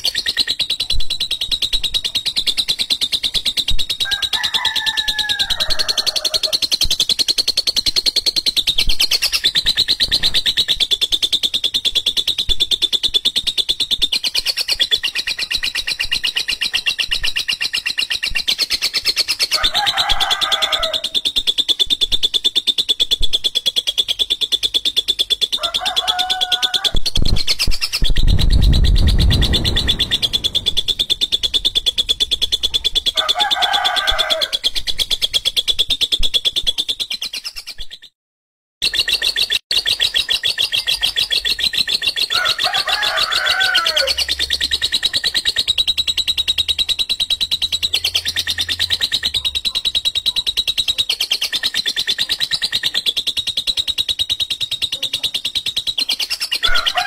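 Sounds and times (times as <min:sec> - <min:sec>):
bird harsh rapid chatter: 0:00.0 - 0:38.1, 0:38.8 - 0:57.0
low rumble: 0:28.1 - 0:33.1.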